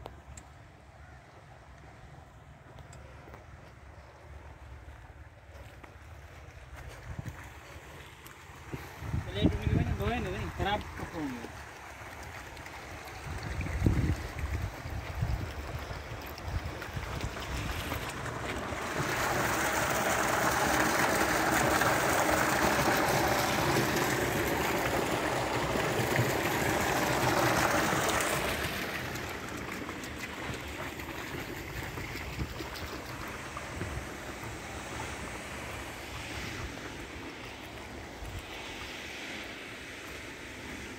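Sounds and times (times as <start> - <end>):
wind noise on microphone: 6.9 - 7.4, 8.7 - 10.6, 13.2 - 18.2
water pouring into a tank: 7.0 - 39.4.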